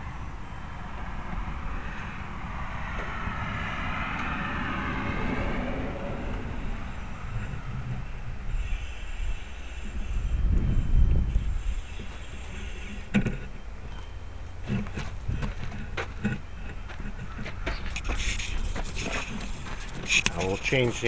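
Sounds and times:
vehicle passing by: 0:00.0 - 0:13.6, 0:14.3 - 0:21.0.

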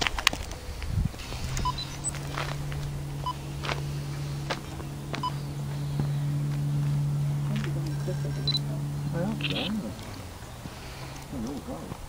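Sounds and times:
faint clicks: 0:00.0 - 0:12.0
low two-tone hum: 0:00.0 - 0:12.0
short high beeps: 0:01.6 - 0:02.2, 0:08.4 - 0:08.7, 0:09.4 - 0:09.7.

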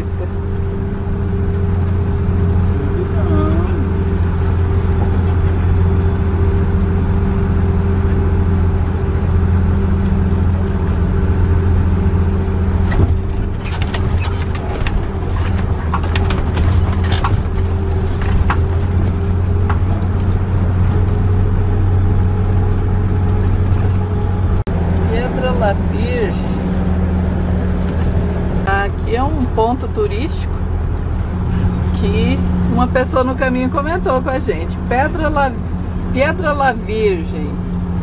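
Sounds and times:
engine droning under load: 0:00.0 - 0:38.0
sharp rattles and clicks: 0:12.9 - 0:20.3.

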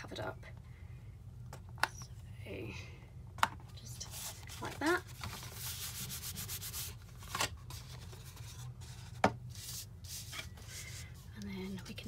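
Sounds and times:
hands rubbing paper: 0:04.0 - 0:07.0.

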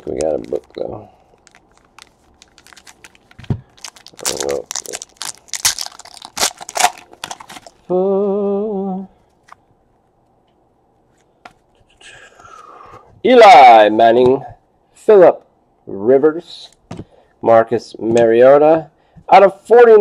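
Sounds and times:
foil wrapper crinkling and tearing: 0:00.0 - 0:07.8.

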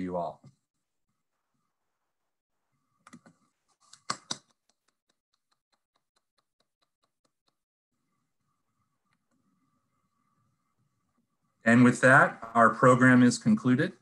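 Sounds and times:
faint regular ticks: 0:04.0 - 0:07.7.

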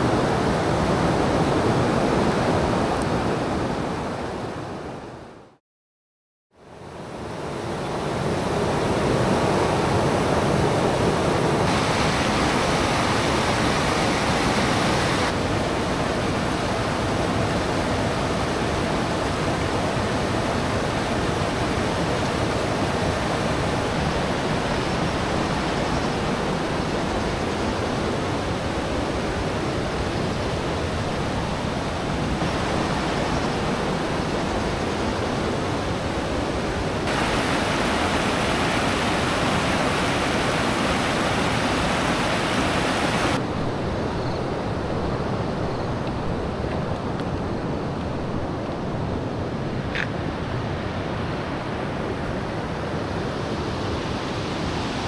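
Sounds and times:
stream rapids rushing: 0:08.1 - 0:43.4.

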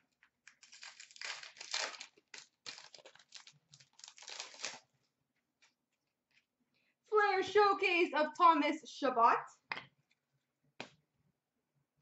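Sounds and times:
wrapper crinkling and tearing: 0:00.2 - 0:04.9.

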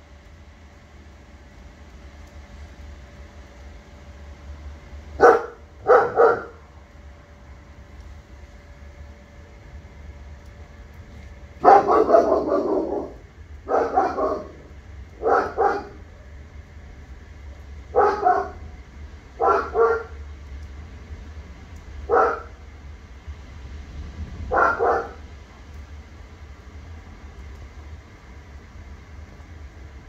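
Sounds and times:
dog barking: 0:05.2 - 0:06.6, 0:11.6 - 0:16.1, 0:17.9 - 0:18.6, 0:19.4 - 0:20.2, 0:22.1 - 0:22.6, 0:24.5 - 0:25.2.

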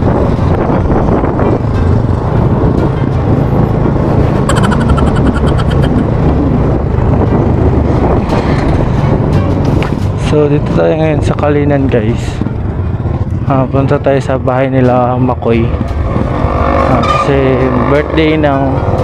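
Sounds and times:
wind rushing over microphone: 0:00.0 - 0:13.5, 0:15.4 - 0:17.0
motorcycle engine running: 0:04.4 - 0:06.1
high-pitched pulsing sound: 0:04.5 - 0:06.2.

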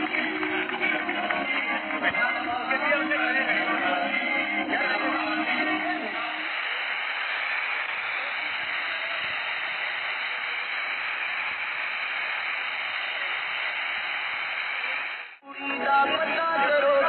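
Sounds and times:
spark fountains hissing: 0:06.1 - 0:15.4.

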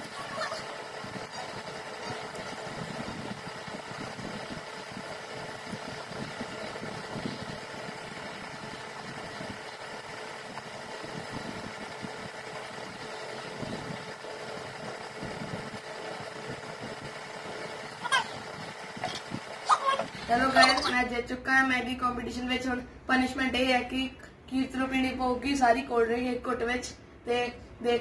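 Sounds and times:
motor humming: 0:00.0 - 0:21.0.

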